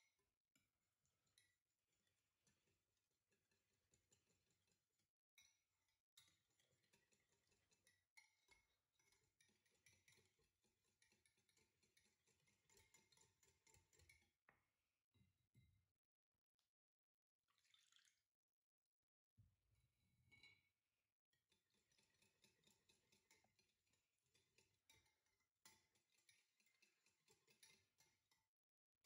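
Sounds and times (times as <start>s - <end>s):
whisk clinking against glass bowl: 6.2s - 14.3s, 21.7s - 28.4s.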